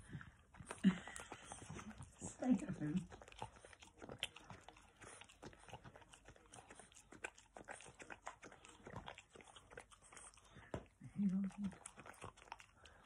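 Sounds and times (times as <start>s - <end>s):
puppy licking and chewing: 0.0s - 13.0s.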